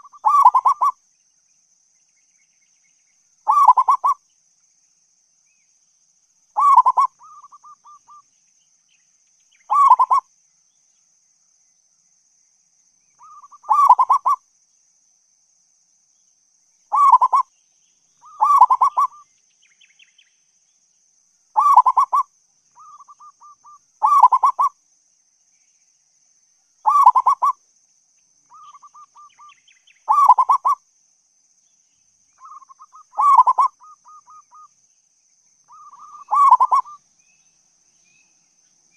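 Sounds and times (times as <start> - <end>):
dove cooing: 0.0 - 1.0, 3.5 - 4.2, 6.6 - 8.2, 9.7 - 10.2, 13.2 - 14.4, 16.9 - 17.4, 18.2 - 19.2, 21.6 - 22.2, 22.8 - 24.7, 26.8 - 27.6, 30.1 - 30.8, 32.4 - 34.7, 35.7 - 37.0.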